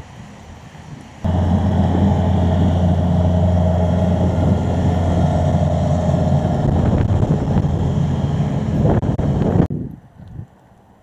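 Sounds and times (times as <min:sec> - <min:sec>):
loader engine running: 0:01.3 - 0:09.7.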